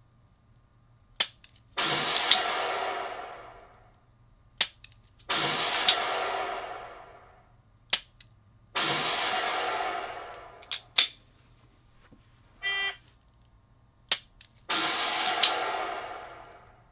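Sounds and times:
gunshot sound effect: 1.8s - 3.9s, 5.3s - 7.5s, 8.8s - 11.1s, 14.7s - 16.9s.

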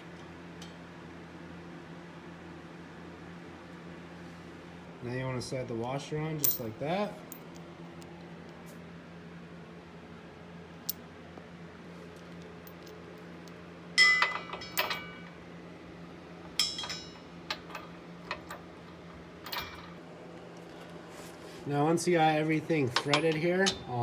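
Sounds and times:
washer and nut clinking on metal: 14.0s - 15.2s, 16.6s - 18.6s, 19.4s - 20.0s, 22.9s - 24.0s.

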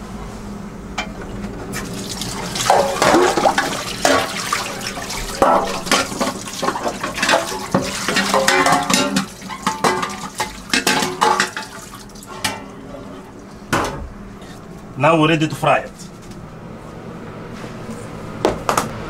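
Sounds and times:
tap water running into sink: 1.8s - 12.3s
metal tray clanking against sink: 2.6s - 12.8s.

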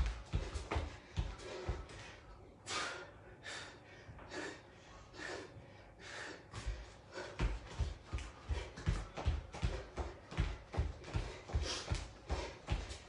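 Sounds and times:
feet thumping on floor mat: 0.0s - 2.1s, 6.6s - 13.0s
person breathing hard: 0.0s - 13.0s.

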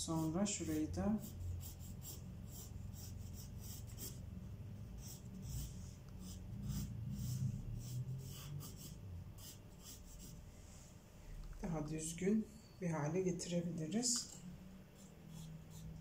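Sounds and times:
pencil scratching on paper: 0.1s - 10.4s, 15.0s - 16.0s.

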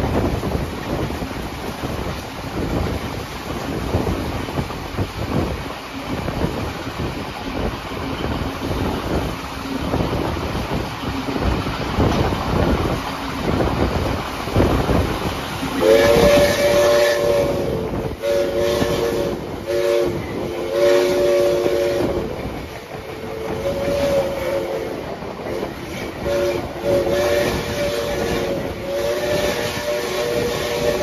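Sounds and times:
train rumble and rail clatter: 0.0s - 31.0s
steam locomotive chime whistle: 15.8s - 31.0s.

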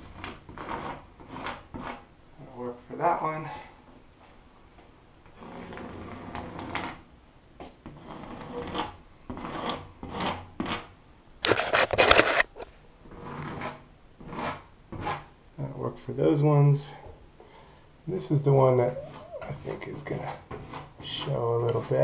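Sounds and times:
caulk rubbing and scraping: 0.0s - 2.1s, 5.4s - 7.0s, 7.8s - 10.9s, 11.5s - 15.3s.

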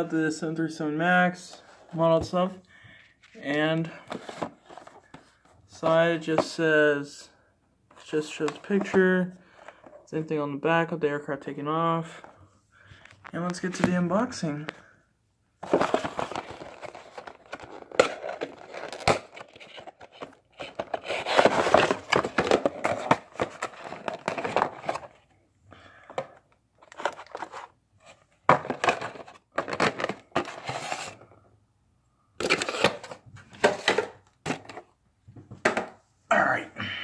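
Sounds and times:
packaging crinkling and rustling: 15.6s - 25.2s, 26.8s - 31.2s, 32.4s - 34.8s.

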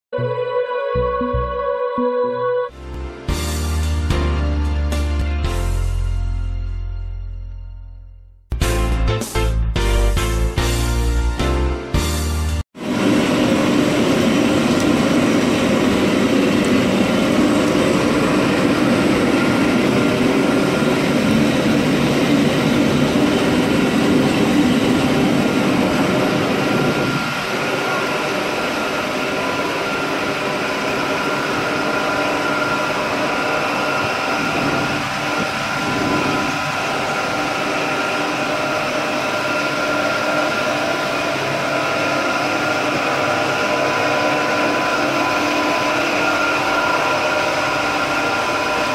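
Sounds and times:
machinery low rumble: 12.8s - 48.9s
machinery whining tones: 12.8s - 48.9s.

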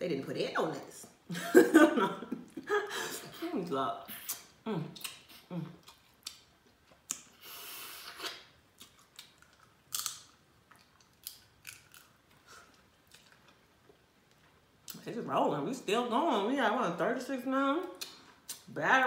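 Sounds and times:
slurping hiss: 7.3s - 8.4s.

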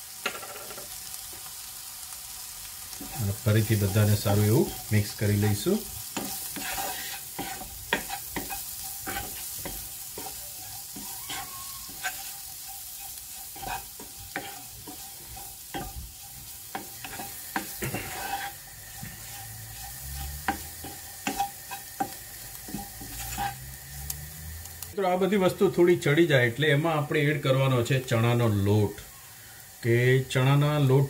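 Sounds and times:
onions sizzling in a pan: 0.0s - 31.0s
spatula scraping a pan: 2.8s - 24.9s.

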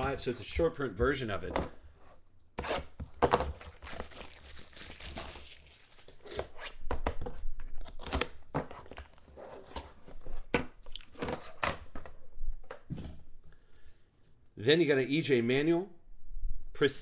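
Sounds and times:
plastic shrink wrap crinkling: 3.2s - 6.4s.

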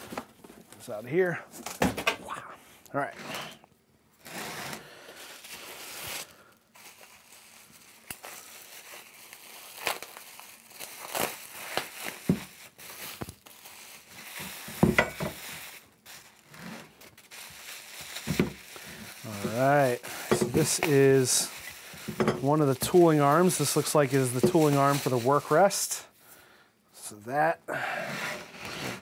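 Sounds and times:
bubble wrap crinkling: 4.2s - 26.1s.

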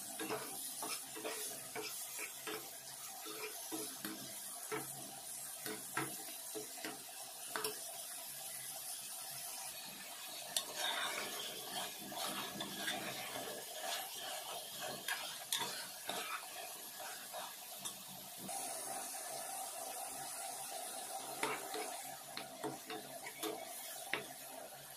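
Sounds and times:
utensil stirring and scraping pan: 0.0s - 7.8s, 10.3s - 18.5s, 21.0s - 24.5s
light sizzle: 0.0s - 24.9s
metal spoon stirring curry in pot: 10.6s - 17.6s.

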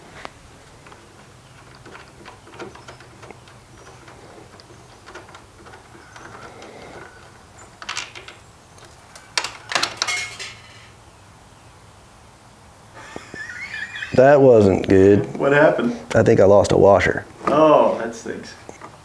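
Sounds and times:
metal bolts clinking: 0.8s - 10.8s
metal clatter: 9.4s - 10.8s.

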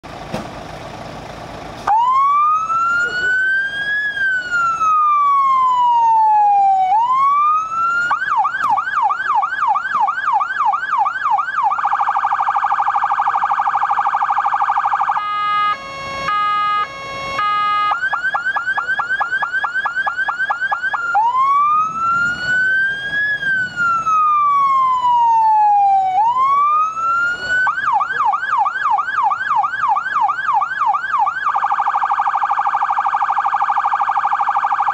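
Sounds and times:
electronic siren cycling tones: 1.9s - 34.9s.

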